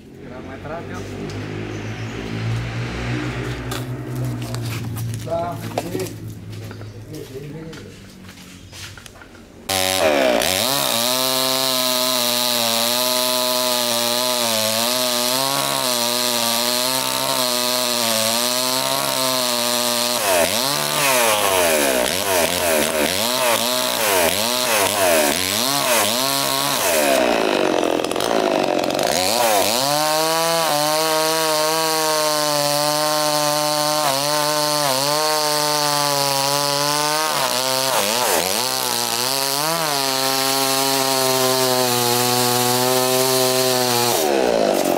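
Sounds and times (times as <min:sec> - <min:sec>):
chainsaw cutting wood: 0:09.7 - 0:44.9.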